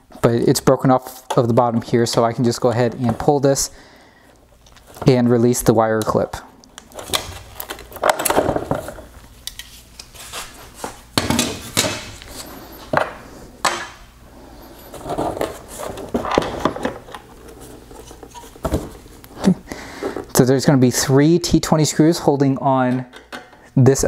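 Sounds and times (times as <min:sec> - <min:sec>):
plastic parts clunking on wood: 0:07.0 - 0:09.1, 0:15.0 - 0:17.2, 0:18.2 - 0:19.0.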